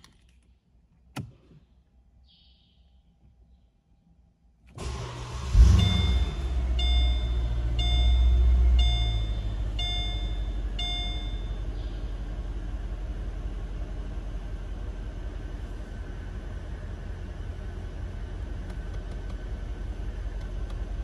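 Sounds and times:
car engine starting and idling: 4.6s - 21.0s
seatbelt warning chime: 5.8s - 11.7s.

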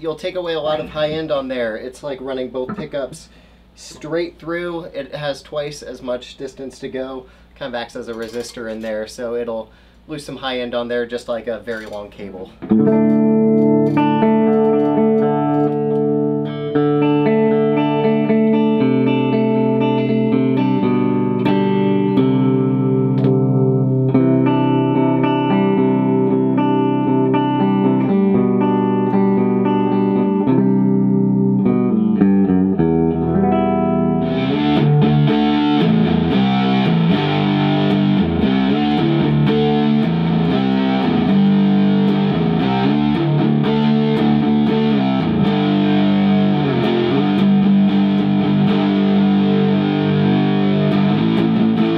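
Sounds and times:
electric guitar through amplifier: 2.6s - 4.0s, 12.6s - 51.9s.

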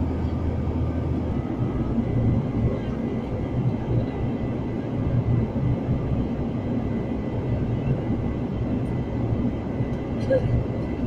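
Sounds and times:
aircraft engines and airflow rumble: 0.0s - 11.0s.

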